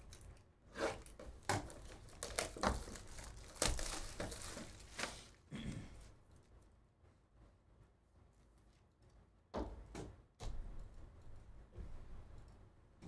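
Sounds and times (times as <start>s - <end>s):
plastic wrap crinkling: 1.0s - 5.4s.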